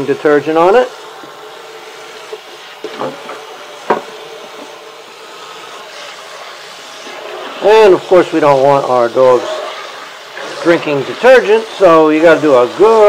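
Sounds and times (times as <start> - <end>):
sponge scrubbing metal bowl: 5.2 - 13.0.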